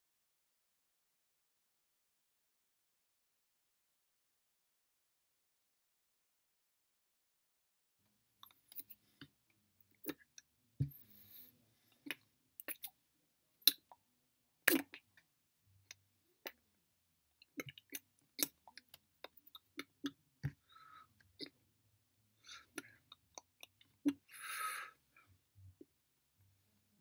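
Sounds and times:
mouth clicks and lip smacks: 12.0s - 13.0s, 13.6s - 14.0s, 14.7s - 15.2s, 17.4s - 20.6s.

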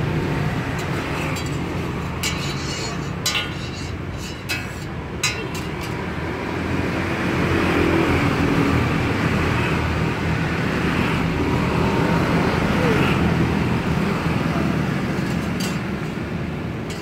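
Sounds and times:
road traffic noise: 0.0s - 17.0s
spatula clinking on steel griddle: 0.7s - 6.0s, 15.2s - 16.1s.

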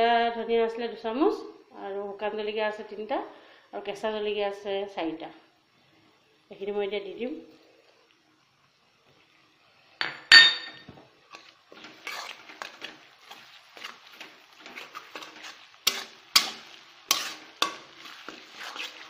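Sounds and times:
onions frying in hot oil: 3.9s - 19.0s
spatula stirring and scraping: 11.0s - 19.0s
metal clanks against a wok: 14.2s - 18.4s
spatula clinking on pan: 15.9s - 17.9s.

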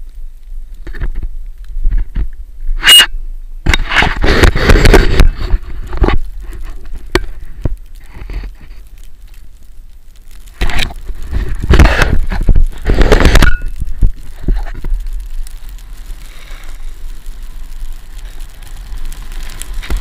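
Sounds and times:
wind rumble on microphone: 0.0s - 20.0s
skis scraping over snow: 3.8s - 9.6s, 10.4s - 20.0s.

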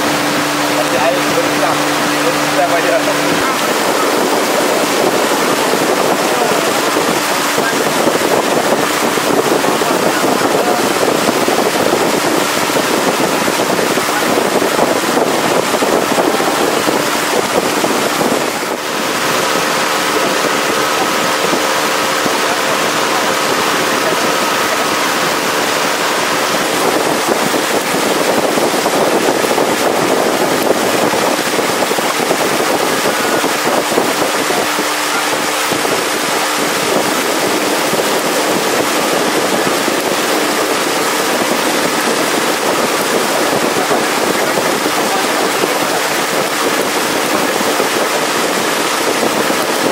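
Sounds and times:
boat motor humming: 0.0s - 49.9s
rushing water: 0.0s - 49.9s
wind: 0.0s - 49.9s.

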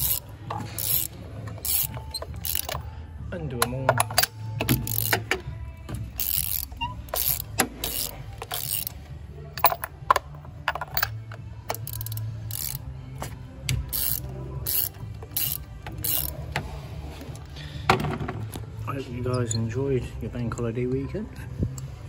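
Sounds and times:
socket ratchet clicking: 0.0s - 2.9s, 3.9s - 5.4s, 6.2s - 9.0s, 9.6s - 12.8s, 13.7s - 16.5s.

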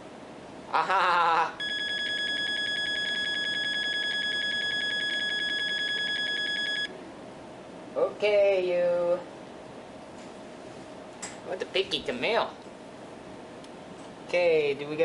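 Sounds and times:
computer speaker beep: 1.6s - 6.9s.

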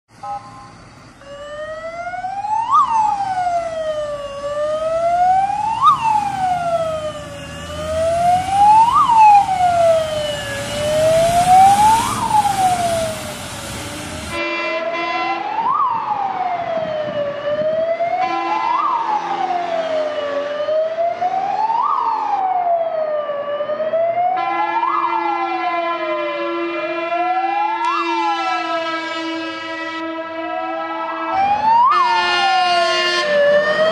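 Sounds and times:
heavy vehicle rumble: 0.1s - 18.2s
fire engine siren wailing: 0.2s - 33.9s.

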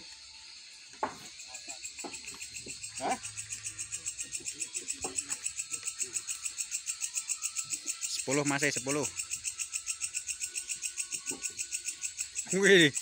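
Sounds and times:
constant high whine: 0.0s - 8.3s
crickets chirping: 0.0s - 13.0s
timber knocks: 1.0s - 1.3s.

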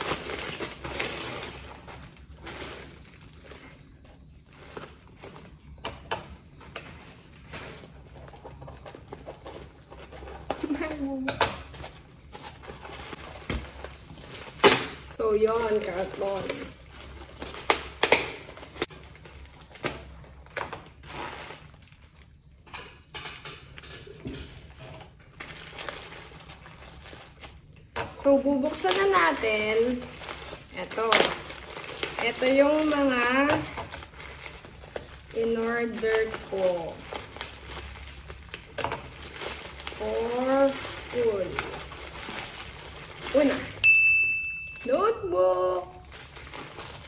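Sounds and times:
cardboard box crumpling: 0.0s - 5.6s, 6.9s - 22.1s, 28.7s - 43.8s, 45.9s - 47.0s
plastic mailer bag rustling: 0.0s - 22.5s, 24.4s - 43.9s, 44.6s - 47.0s
bubble wrap crackling: 0.0s - 22.7s, 24.4s - 43.9s, 44.6s - 47.0s.

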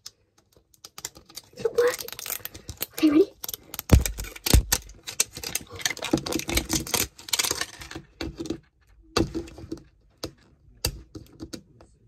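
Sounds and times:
plastic wrapping crinkling: 0.9s - 8.0s.

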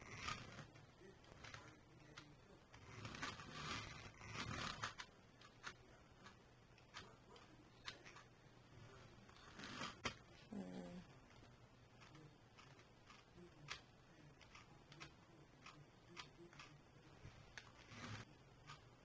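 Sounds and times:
rustling scrapes: 2.8s - 6.4s, 16.6s - 18.8s.

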